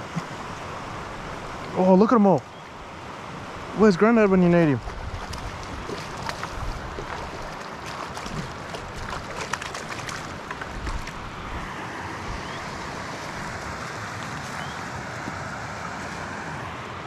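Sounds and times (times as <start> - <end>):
creek rapids rushing: 0.0 - 17.0.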